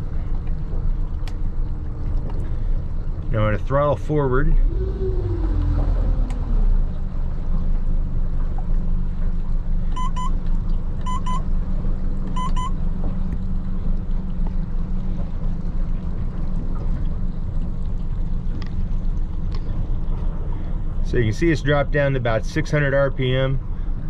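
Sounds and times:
outboard motor running: 0.0 - 24.0
double beeps: 10.0 - 10.4, 11.0 - 11.4, 12.4 - 12.8.

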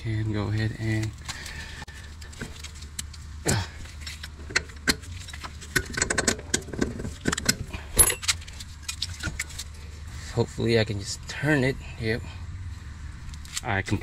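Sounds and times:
metal clinks and rattles: 3.8 - 9.8.

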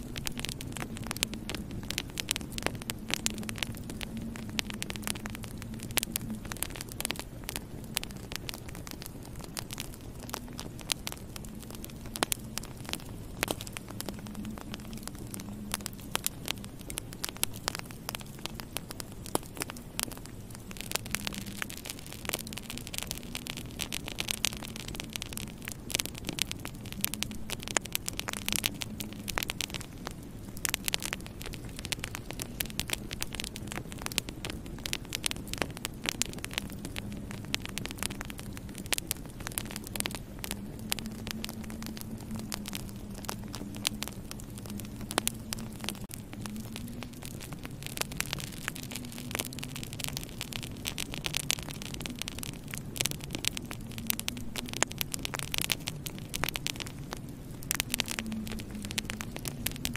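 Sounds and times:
low steady hum: 0.0 - 59.9
wood fire crackling: 0.0 - 59.9.

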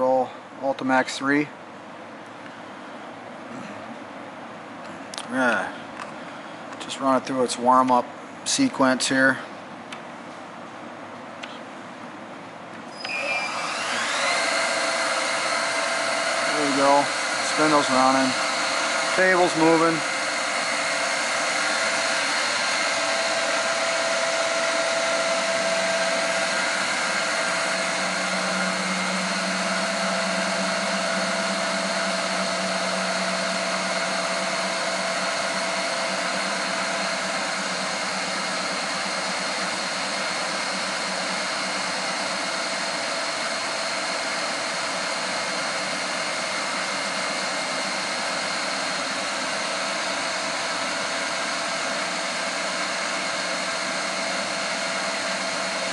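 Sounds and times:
machine table traversing: 12.9 - 15.8
milling machine spindle whine: 12.9 - 55.9.

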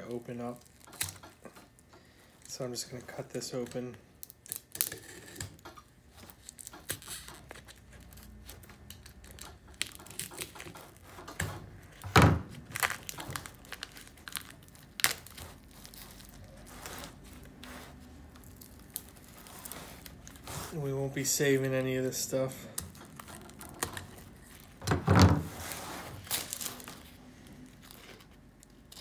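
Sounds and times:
cardboard crinkling and ripping: 11.9 - 21.2, 23.0 - 29.0.

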